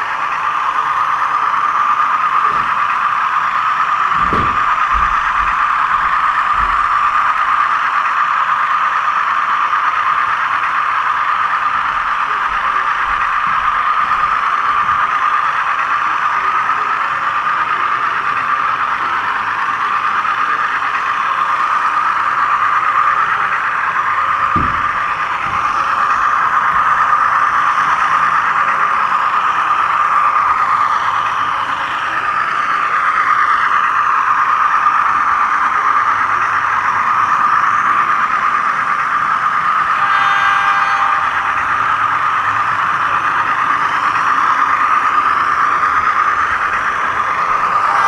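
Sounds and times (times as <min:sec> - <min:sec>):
model train whirring rattle: 0:00.0 - 0:48.0
brief squealing tone: 0:39.9 - 0:42.1.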